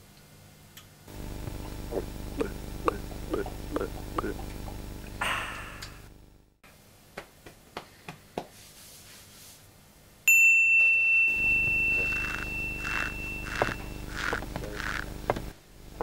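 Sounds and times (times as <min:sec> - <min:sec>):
high bell-like ding: 0:10.3 - 0:14.0
soft footsteps: 0:11.9 - 0:16.0.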